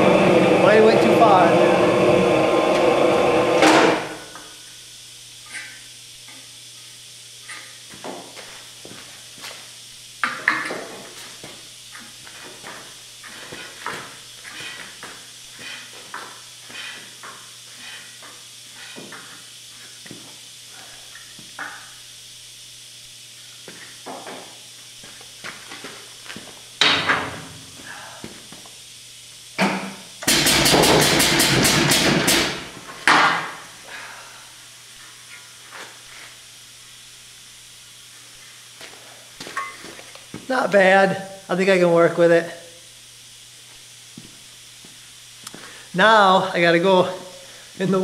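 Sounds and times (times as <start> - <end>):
low machine hum: 0.0 - 48.0
soft hissing puffs: 45.4 - 46.0.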